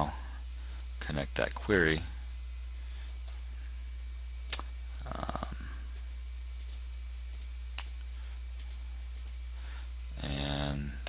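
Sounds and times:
low electrical hum: 0.0 - 11.0
computer mouse clicking: 4.5 - 8.0, 8.6 - 9.4.

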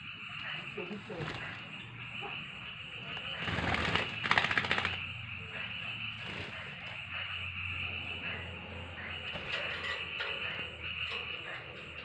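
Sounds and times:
bird fluttering feathers: 1.1 - 1.7, 3.1 - 5.2, 6.2 - 6.8.

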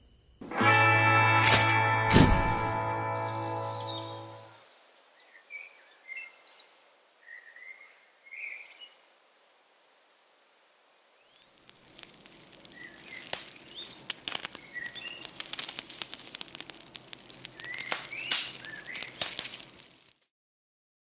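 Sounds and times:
small birds chirping: 3.0 - 9.1, 10.6 - 20.1
sharp crackles and clicks: 11.2 - 20.3.

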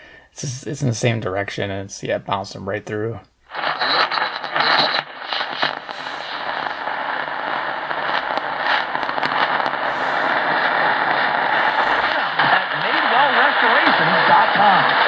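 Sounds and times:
radio static hissing and crackling: 3.4 - 15.0
radio clicks: 3.5 - 15.0.

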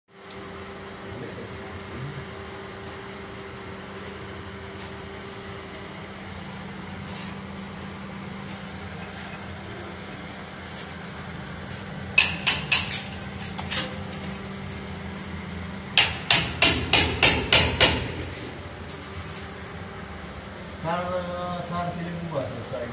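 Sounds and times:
hammer blows: 16.0 - 18.6.

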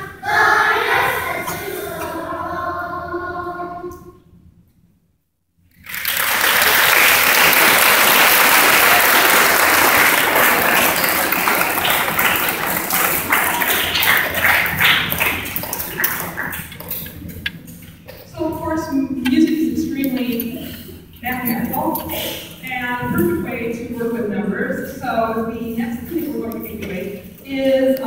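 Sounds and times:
audience applauding: 5.7 - 17.1.

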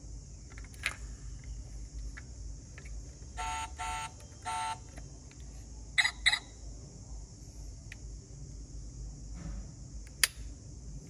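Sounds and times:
toy car electronic beeps: 3.4 - 4.8, 6.0 - 6.5.

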